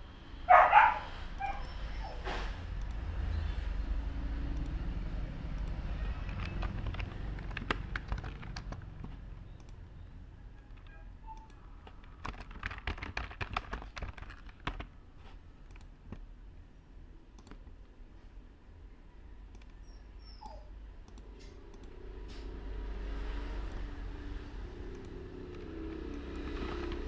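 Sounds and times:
computer keyboard typing: 5.4s - 9.9s, 10.6s - 15.0s, 15.6s - 16.2s, 17.4s - 17.8s, 23.6s - 23.9s, 24.8s - 27.0s.

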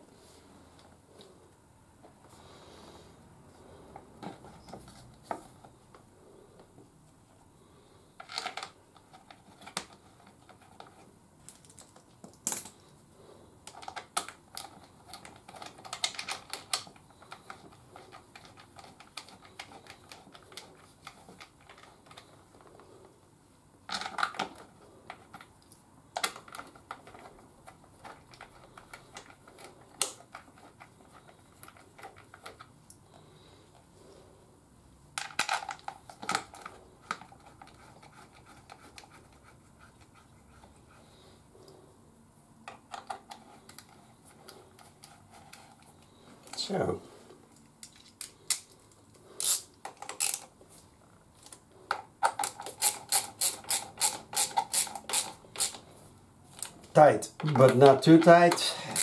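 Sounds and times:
plastic part clicks and rattles: 51.4s - 55.8s.

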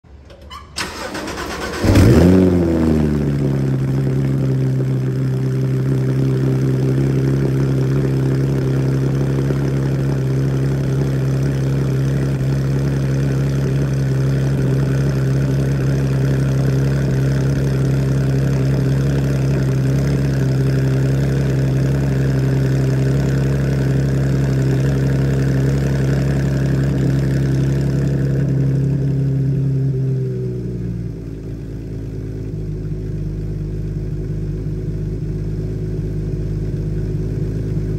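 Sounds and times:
car engine cold start: 0.1s - 4.6s.

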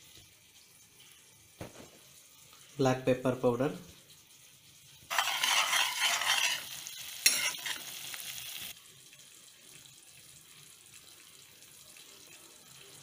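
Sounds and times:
gravy sizzling in a pan: 0.0s - 13.0s
ladle stirring: 5.1s - 7.9s.

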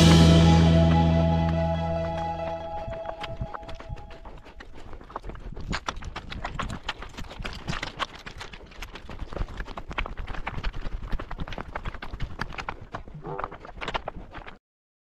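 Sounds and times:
low rumble: 0.0s - 4.2s
footsteps on rocky ground: 0.9s - 14.6s.

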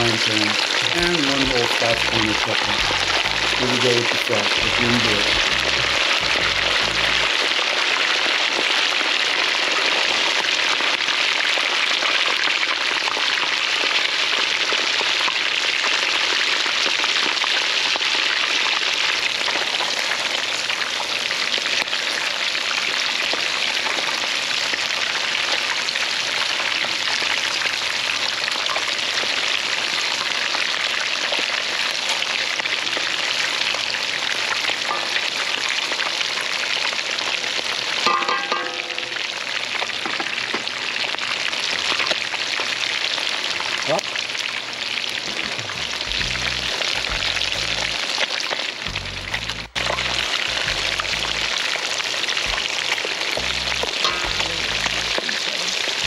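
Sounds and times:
fish deep-frying sizzling: 0.0s - 56.0s.

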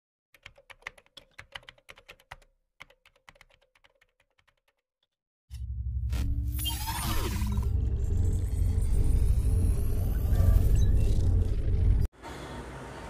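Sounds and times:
deep rumble with music: 5.6s - 12.1s.

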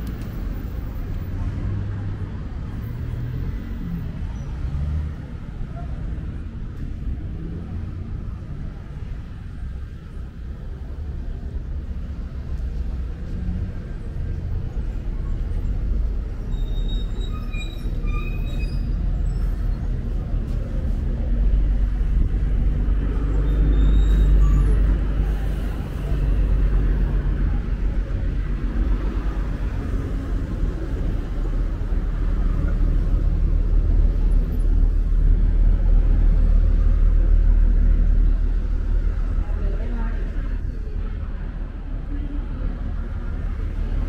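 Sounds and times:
rumble of passing vehicles: 0.0s - 44.0s
short high squeaks: 16.5s - 19.5s.

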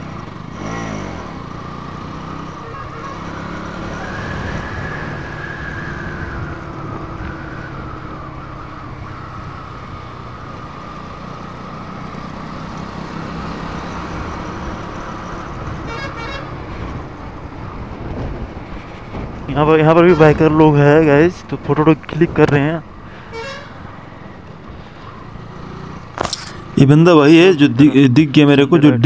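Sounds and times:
motorcycle engine running: 0.0s - 5.0s
vehicle horn tooting: 2.6s - 3.5s, 15.8s - 16.6s, 23.2s - 23.8s.

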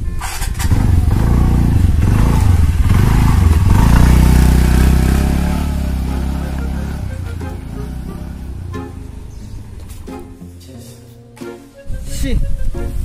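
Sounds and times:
scooter engine revving: 0.0s - 9.9s.

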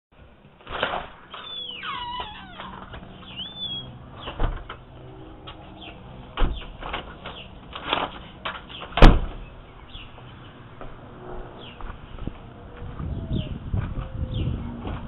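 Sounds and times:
birds chirping: 1.2s - 14.8s.

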